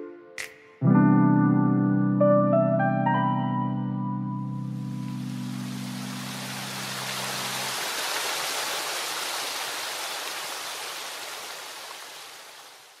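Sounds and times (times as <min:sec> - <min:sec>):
stream cascading over rocks: 0:05.0 - 0:13.0.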